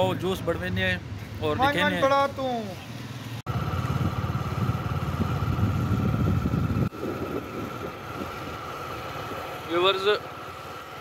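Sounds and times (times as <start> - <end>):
vehicle engine and road rumble: 0.0 - 11.0
wind on microphone: 3.6 - 8.7.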